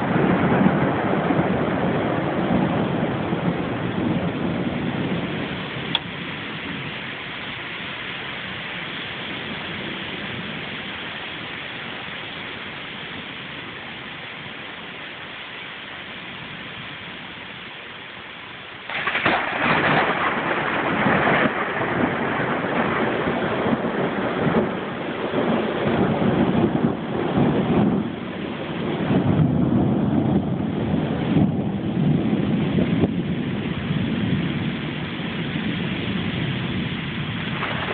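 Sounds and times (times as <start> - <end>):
thunder clap and rumbling: 0.0 - 7.7, 8.5 - 11.6, 18.9 - 37.9
steady rain: 0.0 - 37.9.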